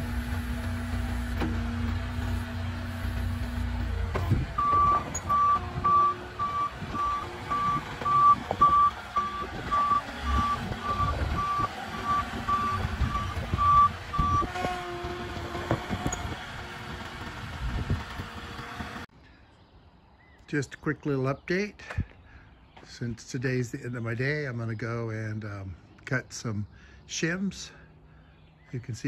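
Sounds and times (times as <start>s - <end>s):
forklift engine running: 0.0s - 19.1s
reversing alarm beeping: 4.6s - 14.6s.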